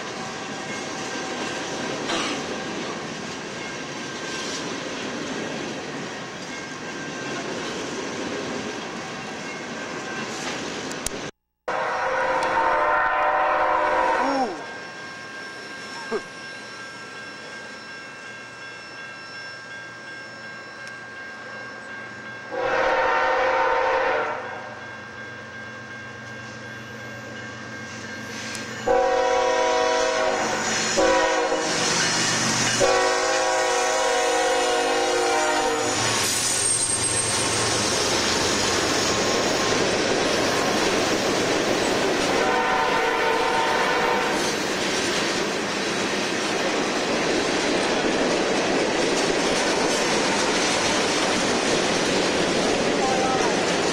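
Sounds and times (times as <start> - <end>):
freight train rumbling past: 0.0 - 53.9
locomotive air horn blasts: 11.7 - 14.6, 22.5 - 24.7, 28.8 - 31.8, 32.8 - 36.2, 42.3 - 44.5.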